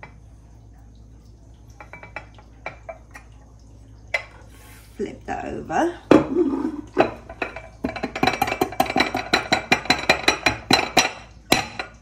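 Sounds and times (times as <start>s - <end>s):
fingers tapping ceramic bowl: 7.0s - 12.0s.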